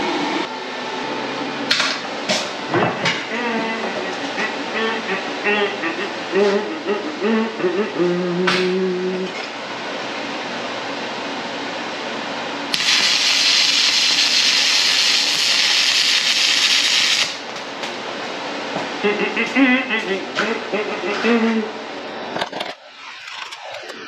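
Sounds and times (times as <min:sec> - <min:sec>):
welding arc crackling and hissing: 0:12.7 - 0:18.0.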